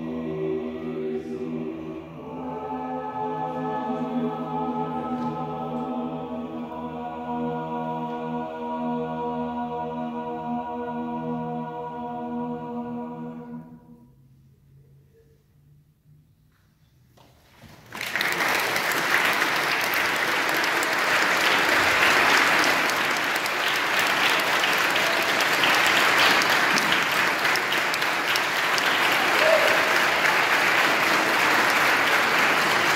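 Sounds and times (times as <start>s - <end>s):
audience applauding: 17.8s - 32.9s.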